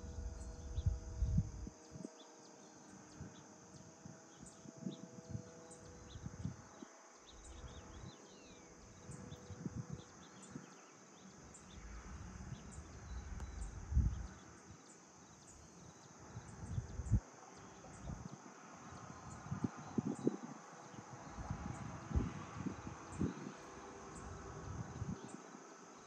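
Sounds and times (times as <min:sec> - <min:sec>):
wind buffeting on microphone: 0:00.0 - 0:02.1, 0:03.1 - 0:08.2, 0:08.8 - 0:10.7, 0:11.6 - 0:14.6, 0:15.9 - 0:17.2, 0:17.8 - 0:25.4
high-pitched insect trill: 0:00.0 - 0:26.0.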